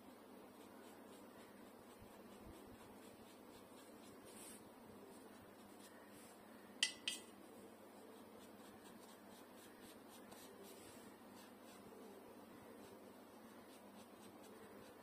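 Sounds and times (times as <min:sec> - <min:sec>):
paintbrush clinking on pot: 0:06.8 - 0:07.3.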